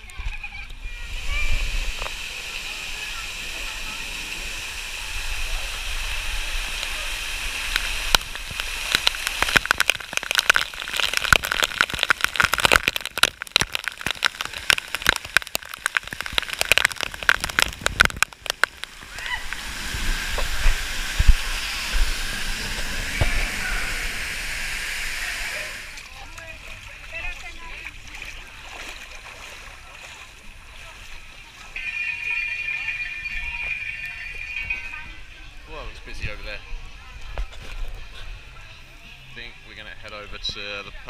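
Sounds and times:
rushing water: 0.0s - 38.8s
water drops splattering on camera: 7.7s - 19.6s
faint crowd voices: 21.5s - 41.0s.

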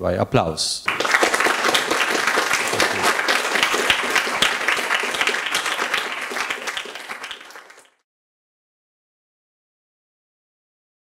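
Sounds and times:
audience applauding: 0.9s - 8.0s.

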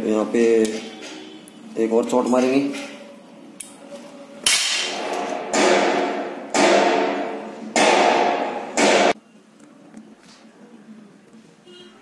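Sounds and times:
steel ringing: 0.6s - 1.3s.

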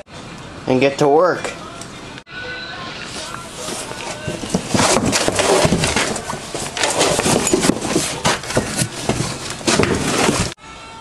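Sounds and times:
cardboard crackling and rustling: 3.2s - 10.6s.

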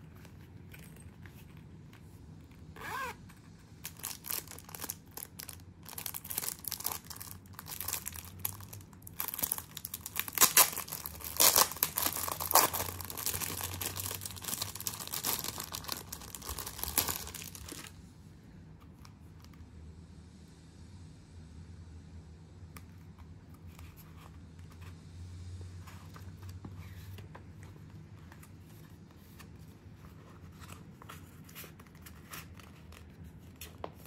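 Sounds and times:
plastic packaging crinkling: 3.8s - 17.9s.

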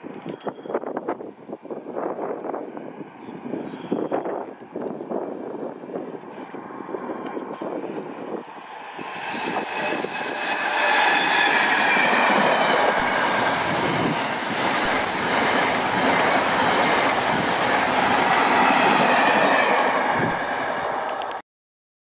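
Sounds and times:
wheel and rail noise: 0.0s - 21.4s
train passing at speed: 5.4s - 21.4s.

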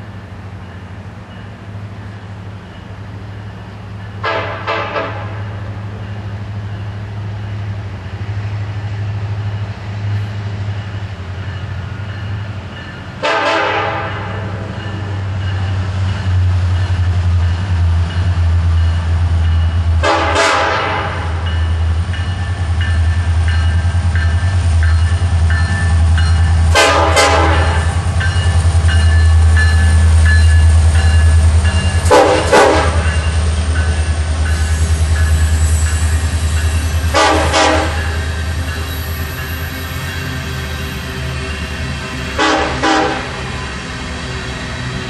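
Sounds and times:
locomotive engine rumble: 0.0s - 45.0s
rail cars rolling past: 0.0s - 45.0s
train horn chord: 4.2s - 5.6s, 13.2s - 14.7s, 20.0s - 21.4s, 26.7s - 28.0s, 32.0s - 33.2s, 37.1s - 38.2s, 42.3s - 43.4s.

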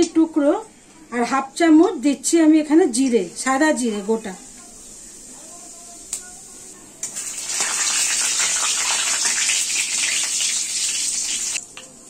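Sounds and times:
spices sizzling in hot oil: 3.6s - 11.9s.

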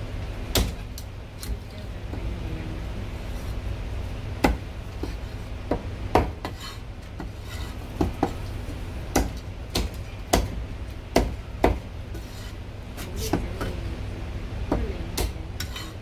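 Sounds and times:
steady low hum: 0.0s - 16.0s
cleaver chopping on wooden block: 5.7s - 6.6s, 9.1s - 10.6s.

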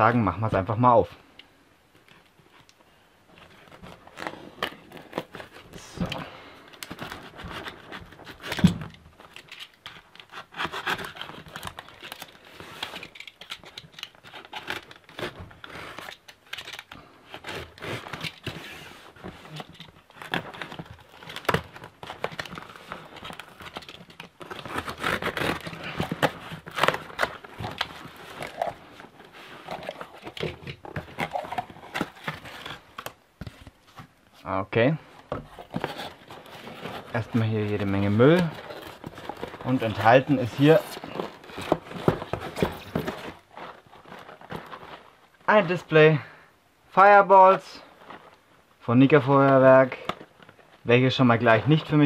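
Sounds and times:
cardboard flaps scraping and crinkling: 6.9s - 34.2s, 35.2s - 45.9s
tape tearing off: 23.4s - 28.8s
knife slicing packing tape: 24.4s - 27.3s.

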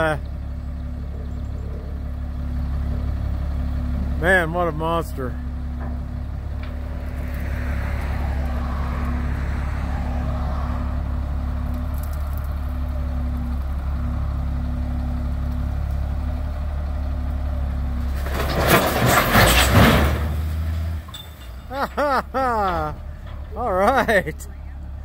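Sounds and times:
dump truck engine running: 0.0s - 25.0s
stones sliding out rattling: 18.1s - 20.9s.

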